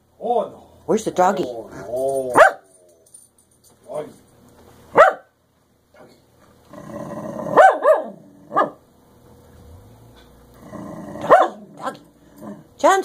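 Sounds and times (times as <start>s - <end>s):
dog yelping barks: 2.4s - 2.7s, 4.9s - 5.3s, 7.6s - 8.8s, 11.2s - 12.0s
rough low growl: 6.7s - 8.6s, 9.5s - 12.8s.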